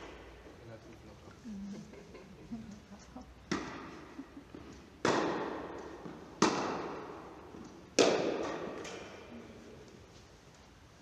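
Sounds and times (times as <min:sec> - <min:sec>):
tennis balls struck by racquets: 0:00.0 - 0:00.6, 0:03.4 - 0:09.4.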